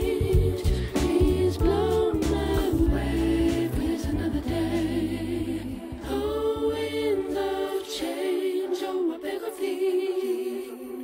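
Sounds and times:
low bass vocal part: 0:00.0 - 0:07.3
a cappella choir harmonies: 0:00.0 - 0:11.0.

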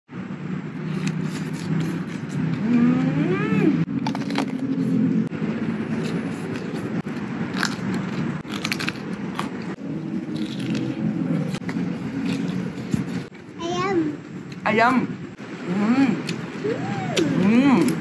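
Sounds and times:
road traffic rumble: 0:00.1 - 0:18.0
crisp crunching of vegetables: 0:05.9 - 0:13.3
person humming mmm: 0:15.7 - 0:18.0.

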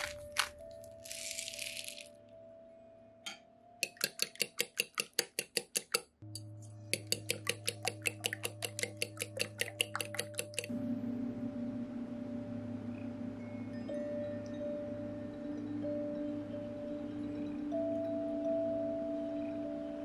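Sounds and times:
fork whisking eggs in bowl: 0:03.8 - 0:06.1, 0:06.9 - 0:10.7.

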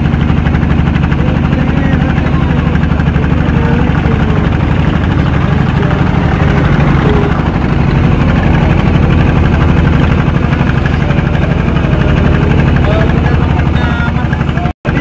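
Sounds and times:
boat engine droning: 0:00.0 - 0:15.0.

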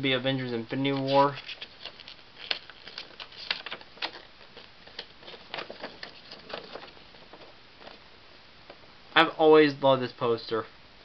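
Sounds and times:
paper poster crinkling: 0:00.1 - 0:08.0.

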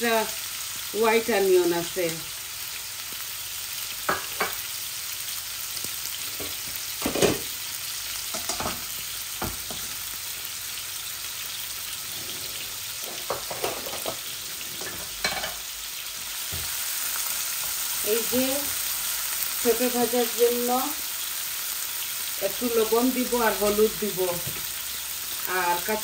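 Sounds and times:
hot oil sizzling: 0:00.0 - 0:26.0
cookware clinking and knocking: 0:13.1 - 0:14.2, 0:14.8 - 0:15.6.

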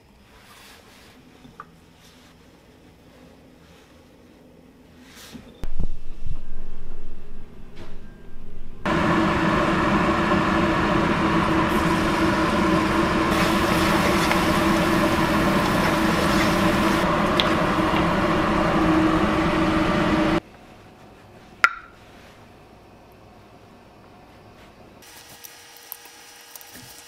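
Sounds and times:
kitchen exhaust fan humming: 0:05.6 - 0:27.0.

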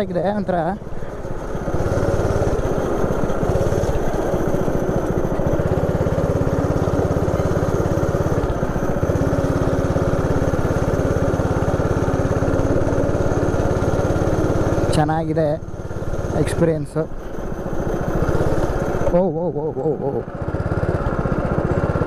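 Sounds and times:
go-kart engine running: 0:00.0 - 0:22.0.

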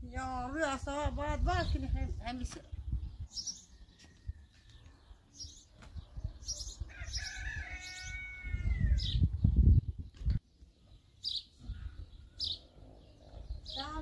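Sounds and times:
small birds chirping: 0:00.0 - 0:14.0
rooster crowing: 0:06.8 - 0:09.1.

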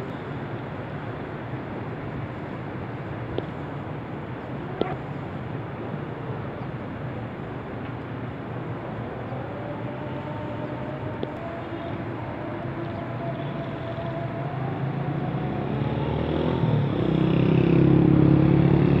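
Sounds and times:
vehicle engine: 0:07.1 - 0:19.0.

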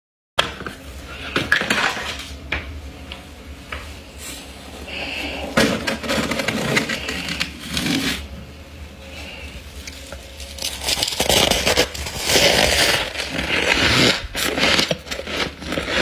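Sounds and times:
fingers crunching frost: 0:09.2 - 0:16.0.

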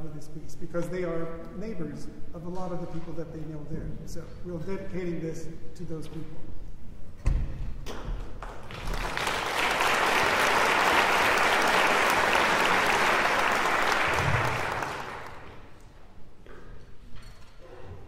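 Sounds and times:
audience applauding: 0:08.4 - 0:15.8.

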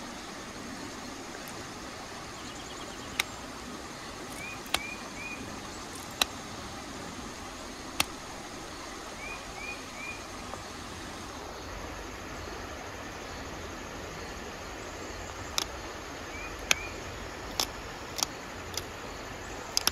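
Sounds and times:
steady background hiss: 0:00.0 - 0:19.9
bird chirping: 0:02.3 - 0:06.3, 0:07.7 - 0:10.4, 0:16.3 - 0:17.6.

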